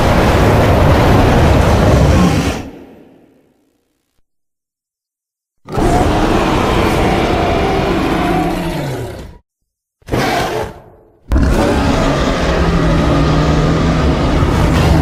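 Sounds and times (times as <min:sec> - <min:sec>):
creature roaring: 0:05.7 - 0:09.4, 0:10.1 - 0:15.0.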